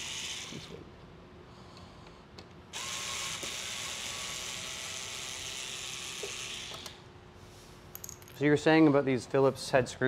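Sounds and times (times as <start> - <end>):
power screwdriver whirring: 2.8 - 7.0.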